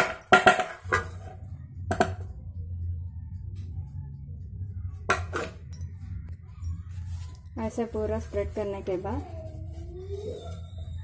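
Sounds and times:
steady low hum: 0:00.0 - 0:09.8.

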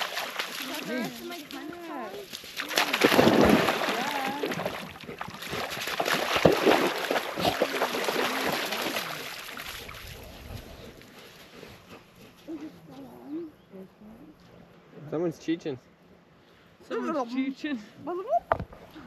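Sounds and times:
dogs splashing in water: 0:00.0 - 0:10.8.

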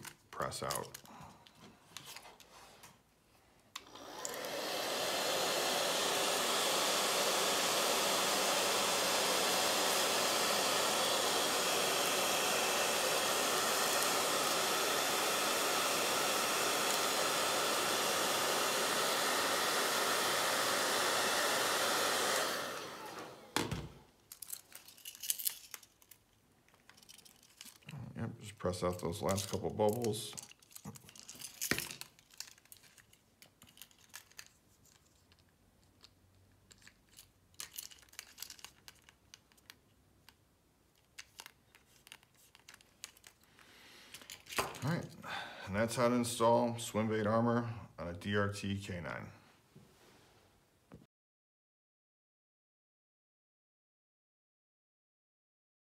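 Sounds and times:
hair dryer blowing: 0:03.8 - 0:24.0, 0:44.2 - 0:47.2.

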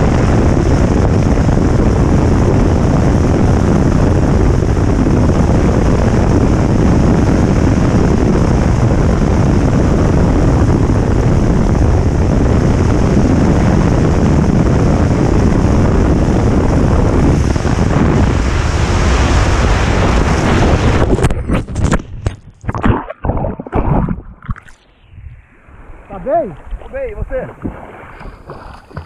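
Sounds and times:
outboard motor at full throttle: 0:00.0 - 0:22.1, 0:27.2 - 0:29.0
wind on microphone: 0:00.0 - 0:29.0
rushing water: 0:25.9 - 0:29.0.

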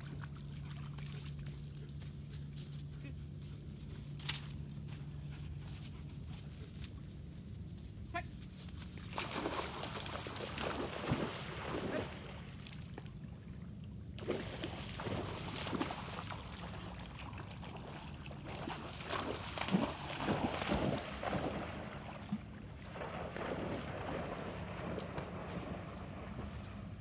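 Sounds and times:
water splashing and sloshing: 0:00.0 - 0:02.6, 0:08.6 - 0:27.0.

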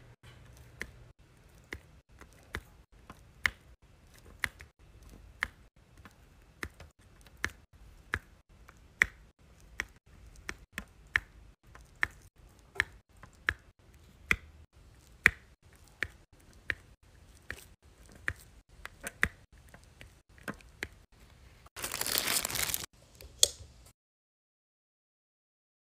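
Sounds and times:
loud crinkling rustle: 0:21.8 - 0:22.9.

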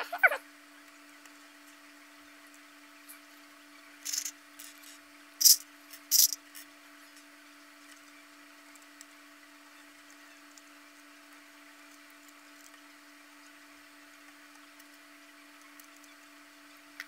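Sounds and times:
faint steady hum: 0:00.0 - 0:17.0
plastic puzzle parts clicking: 0:04.1 - 0:04.8, 0:05.4 - 0:06.4.

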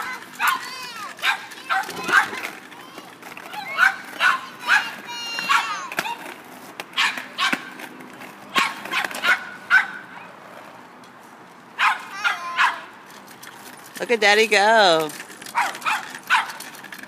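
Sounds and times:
dog barking: 0:01.2 - 0:02.4, 0:03.8 - 0:04.9, 0:05.5 - 0:05.7, 0:08.6 - 0:10.2, 0:11.8 - 0:12.8, 0:15.6 - 0:16.6.

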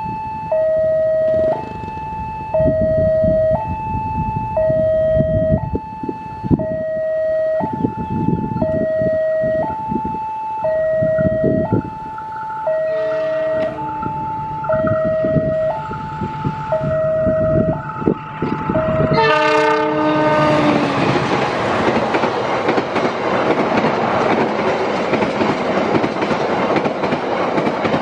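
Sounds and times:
level crossing two-tone alarm: 0:00.0 - 0:20.9
diesel train rumble: 0:00.2 - 0:28.0.

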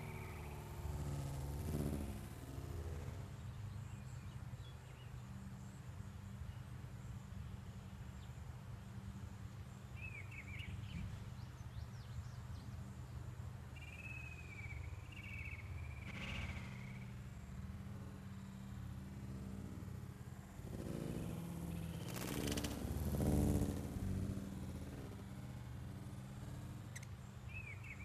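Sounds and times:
low hum: 0:00.0 - 0:04.1, 0:14.7 - 0:28.0.

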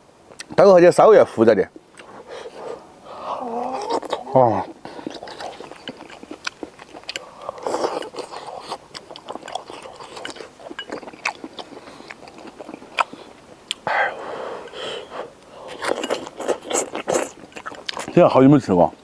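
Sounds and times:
chewing and slurping: 0:03.4 - 0:18.3.

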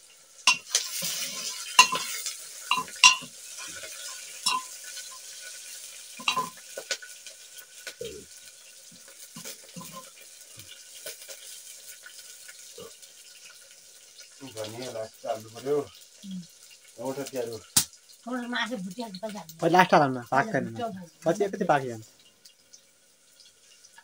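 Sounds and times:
food sizzling: 0:00.0 - 0:24.0
spoon clinking against pot: 0:00.5 - 0:05.2, 0:06.2 - 0:06.9.

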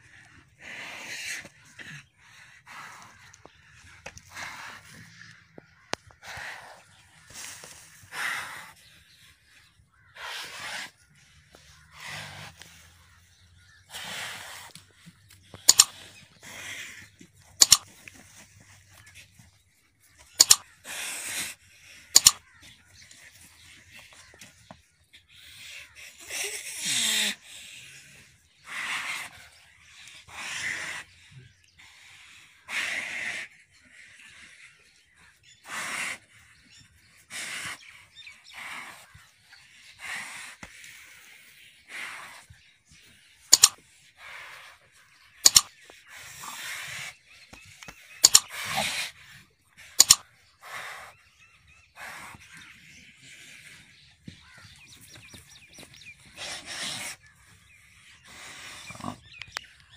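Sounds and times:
mouse double clicks: 0:15.7 - 0:15.9, 0:17.6 - 0:17.8, 0:20.4 - 0:20.6, 0:22.2 - 0:22.4, 0:43.5 - 0:43.8, 0:45.4 - 0:45.7, 0:48.2 - 0:48.5, 0:50.0 - 0:50.2
bull snorting: 0:43.5 - 0:59.9
bull grunt: 0:58.2 - 0:59.6.

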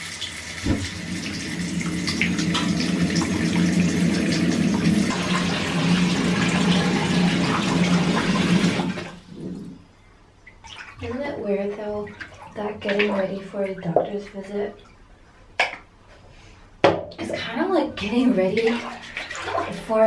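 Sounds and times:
shower water running: 0:00.0 - 0:09.8.

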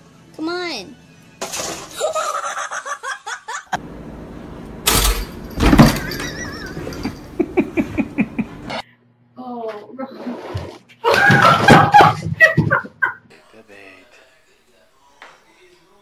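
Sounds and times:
people laughing: 0:02.0 - 0:03.8, 0:06.0 - 0:08.8, 0:11.0 - 0:13.3.

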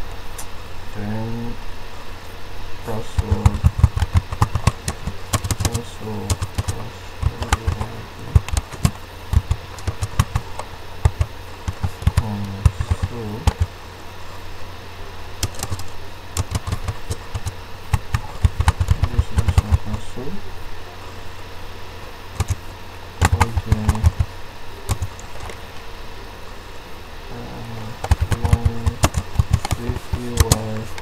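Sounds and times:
low hum: 0:00.0 - 0:31.0
keyboard typing: 0:02.9 - 0:13.8, 0:15.4 - 0:20.0, 0:22.4 - 0:24.3, 0:24.9 - 0:25.6, 0:27.8 - 0:31.0.

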